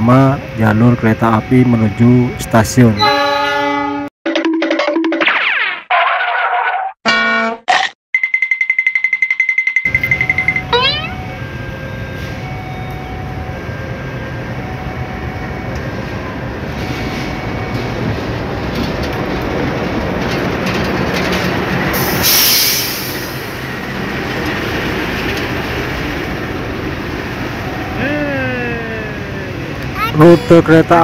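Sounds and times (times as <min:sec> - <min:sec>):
sharp high-pitched noise: 0:10.5 - 0:11.2
wheels rolling over rails: 0:18.6 - 0:22.0
locomotive engine running: 0:23.1 - 0:31.0.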